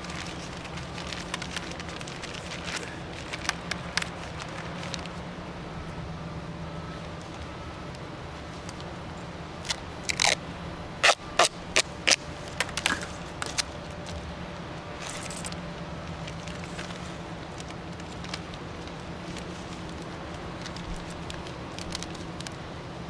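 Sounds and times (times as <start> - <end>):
tape ripping off roll: 9.6 - 10.4, 11.0 - 13.8.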